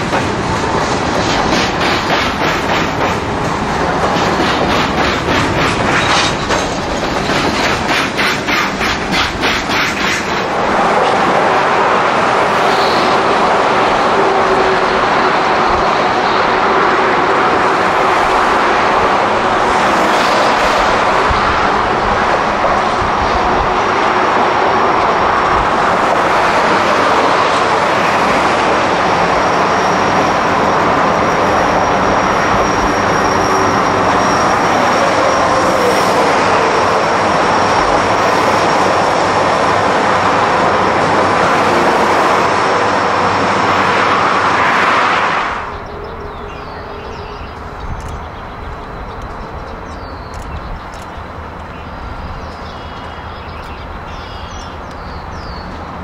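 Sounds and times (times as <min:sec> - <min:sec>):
train wheels clicking over rail joints: 0:00.0 - 0:11.4
train rolling noise: 0:00.0 - 0:56.0.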